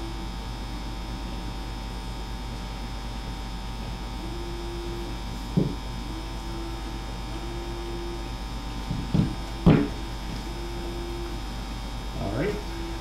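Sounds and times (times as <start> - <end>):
electrical hum: 0.0 - 13.0
higher electrical tone: 0.0 - 13.0
dull knocks of wooden pieces: 5.6 - 5.8, 8.9 - 10.0.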